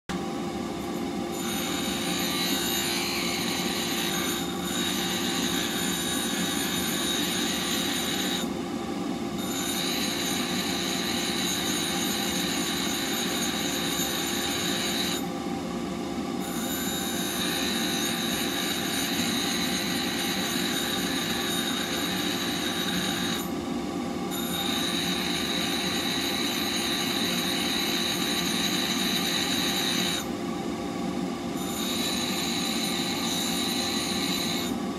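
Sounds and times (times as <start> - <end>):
bench grinder grinding steel: 0.8 - 8.5, 9.4 - 15.3, 16.4 - 23.5, 24.3 - 30.3, 31.6 - 34.8
grinder motor hum: 16.4 - 23.5.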